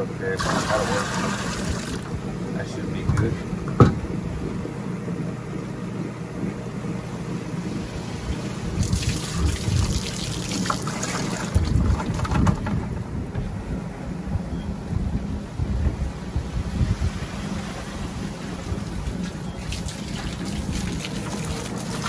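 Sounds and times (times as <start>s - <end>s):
steady low rumble: 0.0s - 22.0s
water splashing and running off: 0.4s - 2.1s, 8.7s - 12.4s, 18.4s - 22.0s.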